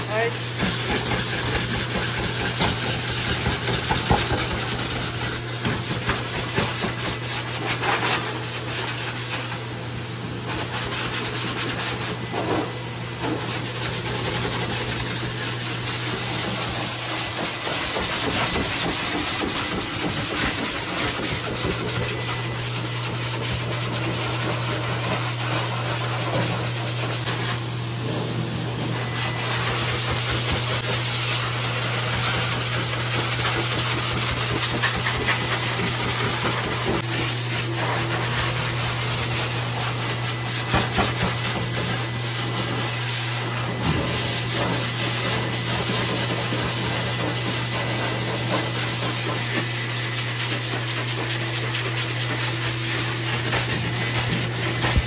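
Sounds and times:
pet blow dryer running: 0.0s - 55.0s
high whine: 52.2s - 55.0s.

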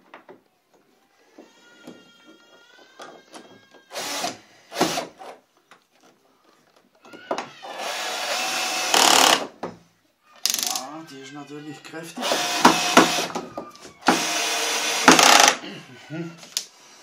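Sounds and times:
cordless drill driving screw: 3.9s - 5.4s, 7.6s - 9.5s, 12.2s - 13.4s, 14.0s - 15.6s.

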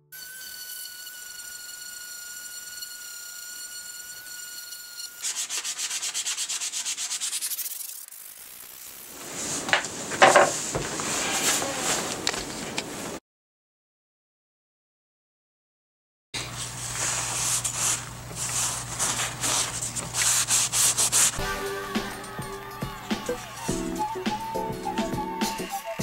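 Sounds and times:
electric sander whining on wood: 0.2s - 5.4s
rough uneven scraping: 9.2s - 13.2s
knocks: 9.7s - 10.9s.

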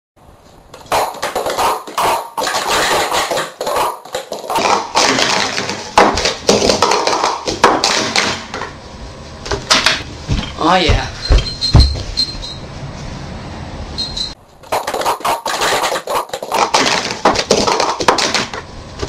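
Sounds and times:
plastic cups clattering: 0.8s - 8.6s, 14.7s - 18.6s.

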